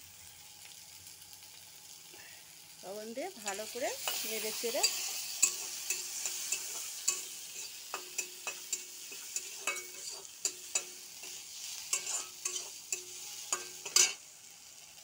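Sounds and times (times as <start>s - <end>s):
food sizzling in hot oil: 0.0s - 15.0s
metal spatula scraping wok: 3.4s - 14.2s.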